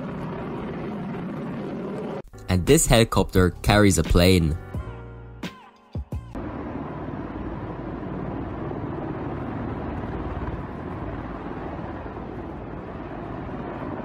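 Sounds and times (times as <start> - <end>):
helicopter rotor and engine: 0.0 - 2.3, 6.4 - 14.0.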